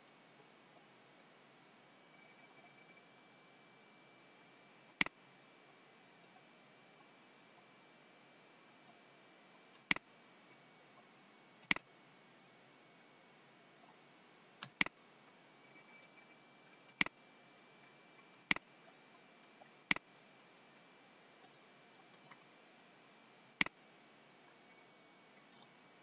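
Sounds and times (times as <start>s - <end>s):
faint high-pitched tone: 1.7s - 5.0s, 15.4s - 19.2s, 24.4s - 26.0s
computer mouse clicking: 14.6s - 15.0s, 19.9s - 20.2s.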